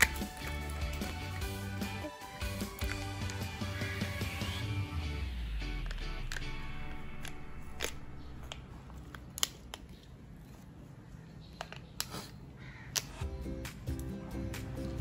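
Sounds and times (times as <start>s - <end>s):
background music: 0.0s - 8.6s, 13.2s - 15.0s.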